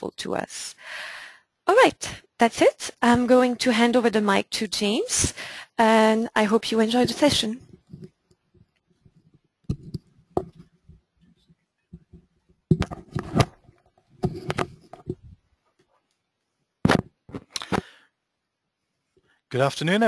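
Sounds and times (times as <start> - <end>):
microphone handling knocks and rustles: 6.9 - 15.5, 16.8 - 17.6.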